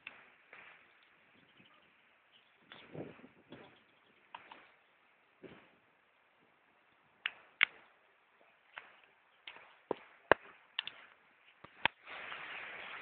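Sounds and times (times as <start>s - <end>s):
laundry flapping in wind: 2.6s - 3.8s, 11.6s - 13.0s.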